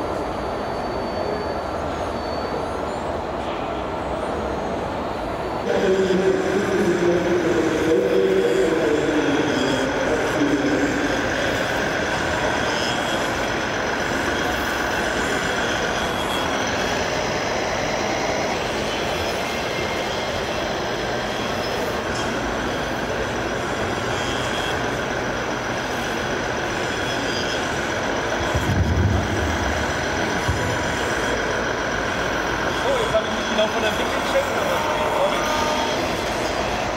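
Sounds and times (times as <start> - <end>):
rc model machines whining: 0.0 - 36.9
hall crowd din: 28.0 - 36.9.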